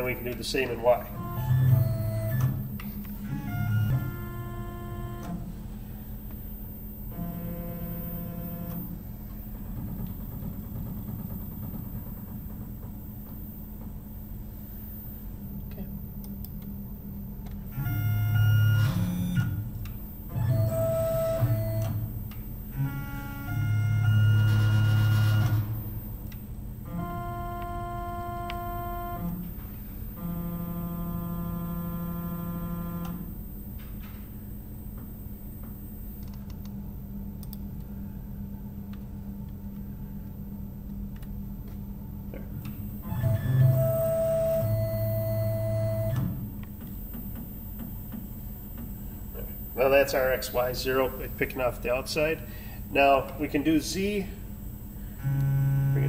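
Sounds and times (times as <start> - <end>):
low musical tones: 0.0 - 8.9, 17.7 - 33.2
mill table motor humming and whining: 0.0 - 56.0.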